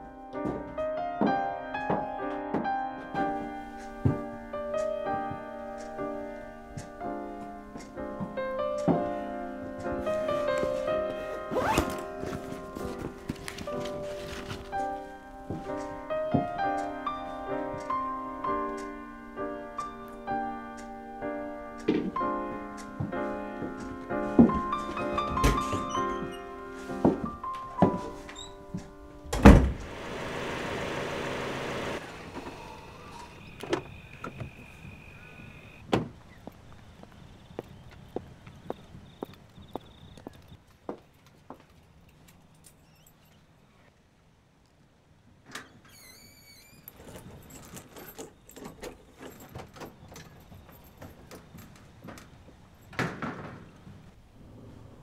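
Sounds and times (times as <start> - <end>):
piano music: 0.0 - 32.0
footsteps clicking: 0.3 - 11.2, 11.9 - 19.1, 19.8 - 29.0, 35.8 - 42.5
door slamming: 24.4 - 26.4, 29.3 - 30.0
door squeak: 24.8 - 26.6, 27.8 - 28.7, 32.0 - 35.8, 45.5 - 49.1
metal screen door clicking and rattling: 45.5 - 53.8.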